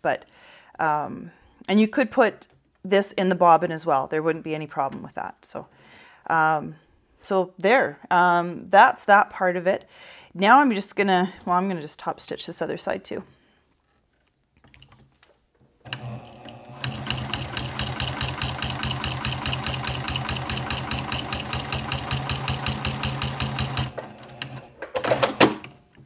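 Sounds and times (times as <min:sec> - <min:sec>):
sewing machine stitching: 0:15.9 - 0:25.6.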